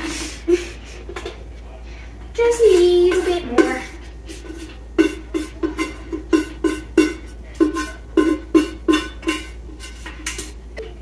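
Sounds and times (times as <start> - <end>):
enamel pot clanking: 2.4 - 11.0.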